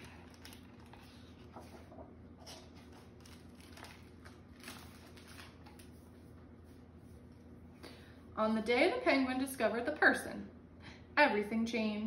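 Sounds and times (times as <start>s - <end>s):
book pages turning: 0.0s - 6.2s.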